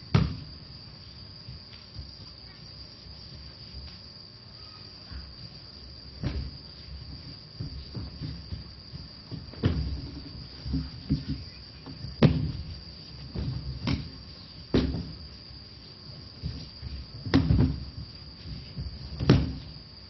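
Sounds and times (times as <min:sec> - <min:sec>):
crickets chirring: 0:00.0 - 0:20.0
bodies thudding on mat: 0:00.1 - 0:00.5, 0:06.1 - 0:15.3, 0:16.3 - 0:19.8.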